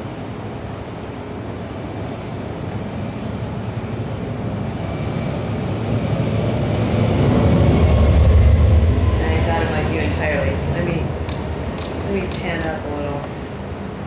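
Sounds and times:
aircraft engine drone: 0:00.0 - 0:14.0.

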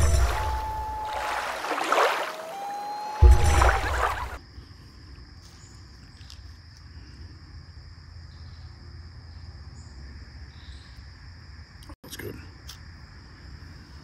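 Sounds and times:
high-pitched insect drone: 0:00.0 - 0:04.4
outro music: 0:00.0 - 0:04.4.

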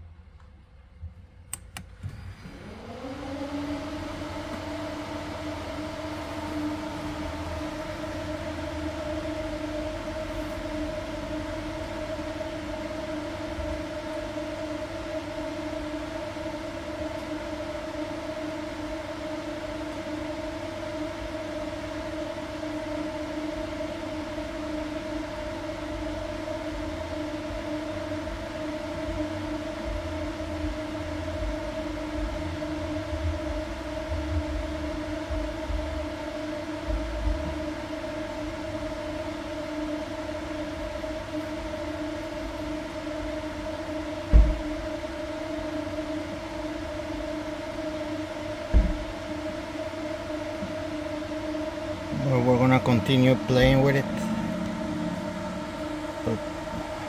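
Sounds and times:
electric fan motor humming: 0:00.0 - 0:57.0
fan switch click: 0:01.5 - 0:02.1
low rumble: 0:53.0 - 0:57.0.

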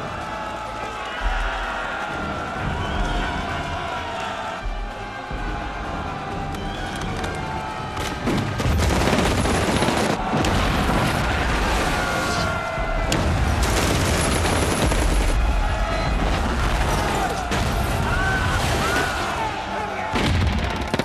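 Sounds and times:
dramatic film music: 0:00.0 - 0:21.0
rifle and machine-gun fire: 0:08.2 - 0:12.3, 0:13.1 - 0:17.9, 0:20.2 - 0:21.0
explosions: 0:08.2 - 0:19.2, 0:20.1 - 0:21.0.

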